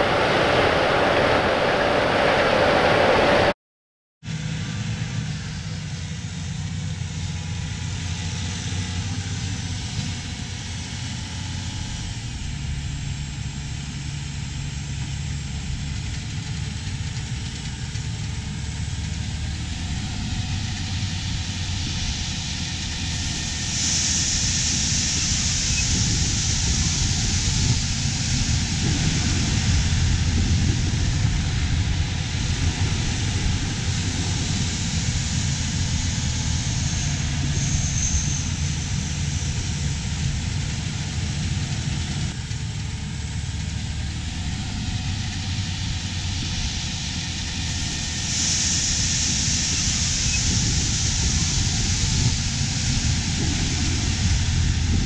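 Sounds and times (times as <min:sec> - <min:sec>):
tractor diesel engine: 0:04.3 - 0:55.0
auger unloading grain: 0:14.3 - 0:55.0
bright hiss: 0:20.0 - 0:41.8, 0:44.5 - 0:55.0.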